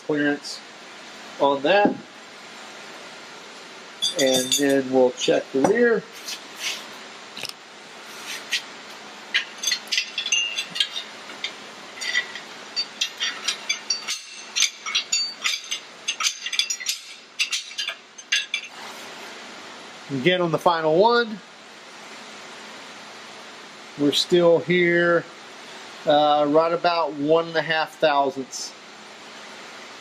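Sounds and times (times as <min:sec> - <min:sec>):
metal tools clinking on engine: 0:04.0 - 0:05.8, 0:09.3 - 0:18.8.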